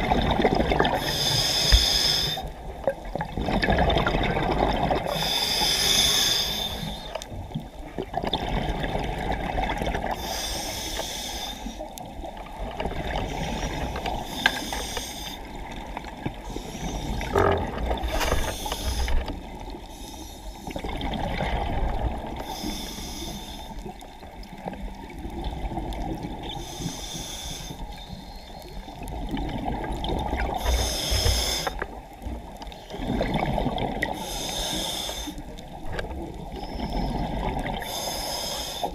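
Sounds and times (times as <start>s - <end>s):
gurgle of exhaled bubbles: 0.0s - 1.2s, 2.3s - 5.2s, 7.4s - 10.2s, 17.0s - 19.7s, 20.7s - 22.6s, 29.0s - 30.9s, 32.4s - 34.2s, 35.7s - 37.9s
regulator inhale hiss: 1.0s - 2.6s, 5.1s - 7.3s, 10.0s - 11.9s, 13.3s - 15.5s, 16.4s - 17.3s, 18.1s - 20.8s, 22.4s - 23.9s, 26.4s - 28.9s, 30.5s - 32.0s, 34.1s - 35.6s, 36.5s - 38.9s.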